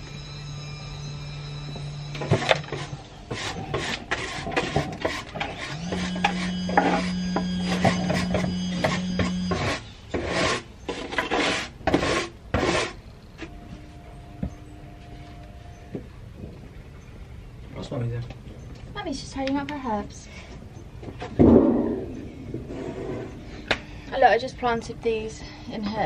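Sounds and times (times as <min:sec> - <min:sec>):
rough rubbing and scraping: 0:02.1 - 0:13.5, 0:21.1 - 0:24.3
steady low hum: 0:12.4 - 0:26.0.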